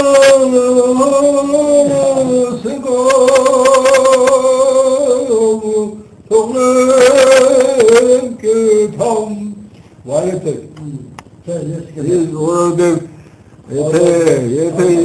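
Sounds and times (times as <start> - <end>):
man singing with vibrato: 0.0 - 9.7.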